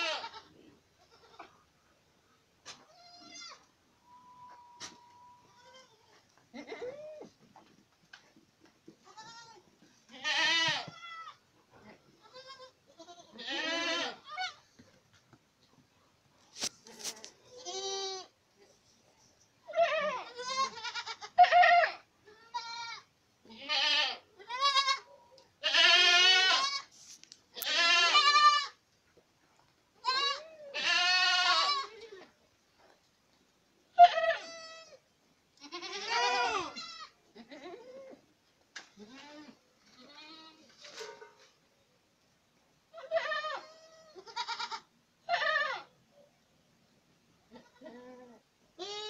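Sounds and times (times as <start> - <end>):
goats bleating: 0.0 - 1.6, 9.0 - 11.4, 12.0 - 14.6, 19.7 - 26.9, 27.6 - 28.8, 30.0 - 32.2, 35.6 - 38.2, 43.0 - 45.9, 47.5 - 49.0.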